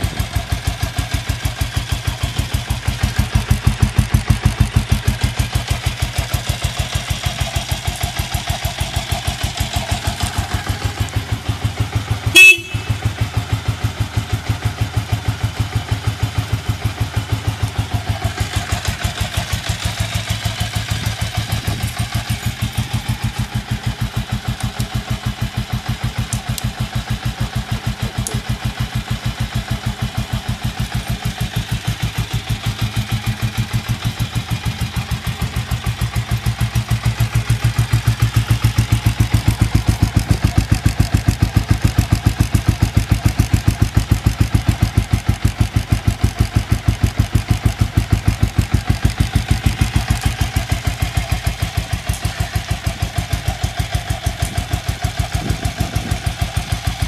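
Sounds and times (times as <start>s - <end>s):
motorcycle engine idling: 0.0s - 57.0s
motorcycle horn: 11.8s - 13.5s.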